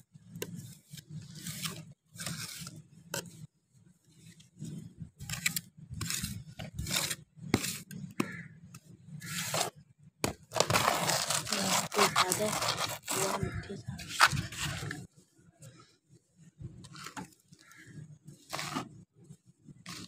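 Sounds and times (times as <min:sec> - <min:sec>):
soil scraping: 0:00.6 - 0:03.4, 0:04.6 - 0:08.3, 0:09.2 - 0:15.1, 0:17.7 - 0:19.0.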